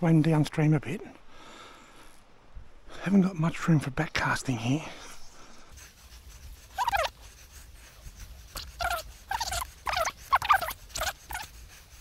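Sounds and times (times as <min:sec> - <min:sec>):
short pitched animal calls: 0:06.7 - 0:07.2, 0:08.5 - 0:11.6.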